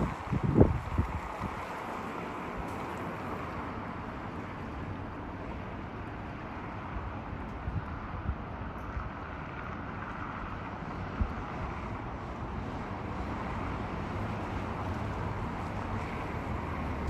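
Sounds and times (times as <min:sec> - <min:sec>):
wind buffeting microphone: 0:00.0 - 0:02.8.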